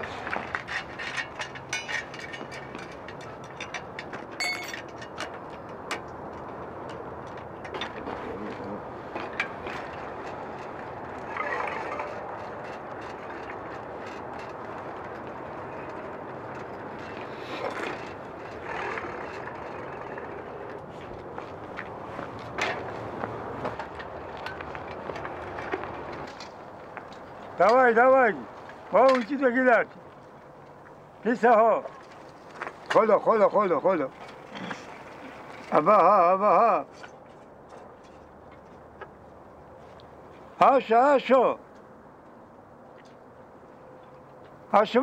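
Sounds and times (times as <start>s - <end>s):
outdoor background noise: 0.0s - 45.0s.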